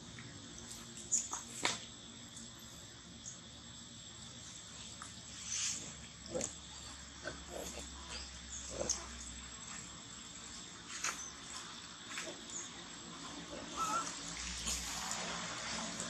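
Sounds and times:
macaques grunting: 6.3 - 9.3, 13.5 - 14.2.

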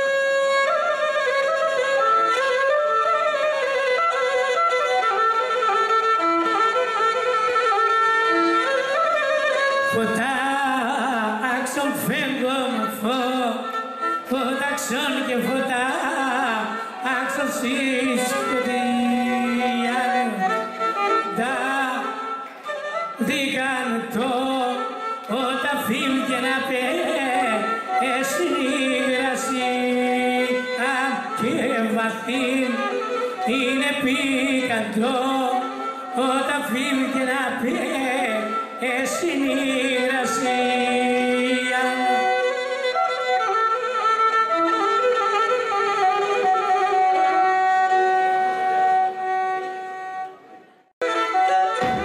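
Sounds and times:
man singing: 9.8 - 22.4, 23.2 - 42.6.

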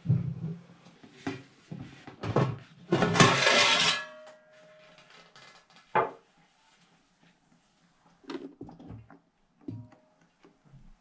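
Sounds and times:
lid clattering and scraping rim: 3.0 - 4.2.

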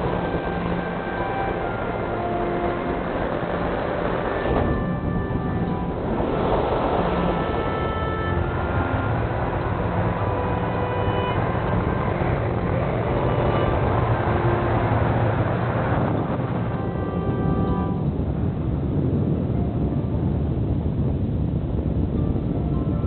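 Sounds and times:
music with held notes: 0.0 - 20.2
wind rushing over microphone: 0.0 - 23.0.

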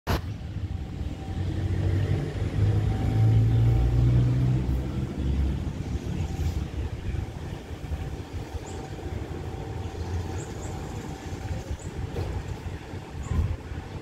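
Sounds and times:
passing vehicle engine rumble: 0.1 - 14.0.

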